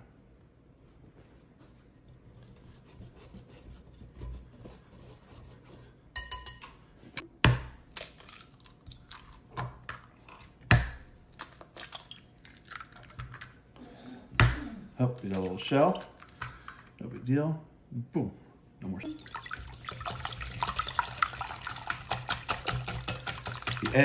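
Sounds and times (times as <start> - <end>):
whisk scratching in glass bowl: 2.2 - 6.0, 20.0 - 24.0
glass clink: 6.2 - 6.7
eggs cracking: 7.6 - 13.6, 14.4 - 17.0, 19.2 - 24.0.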